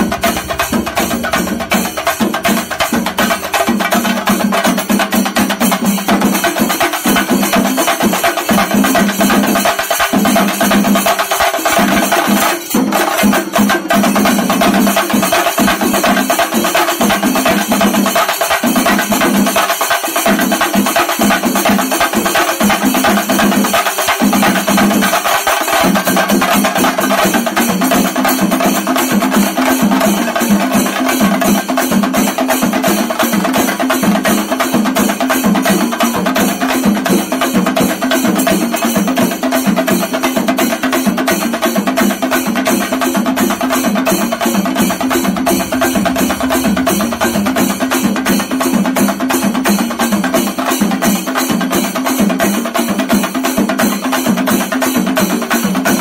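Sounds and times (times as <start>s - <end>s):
drum ensemble playing: 0.0s - 56.0s
steady held tone: 43.2s - 49.6s.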